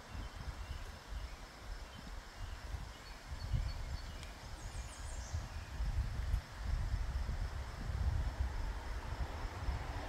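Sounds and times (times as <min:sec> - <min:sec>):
faint bird chirps: 0:00.0 - 0:05.9
wind buffeting microphone: 0:00.0 - 0:10.0.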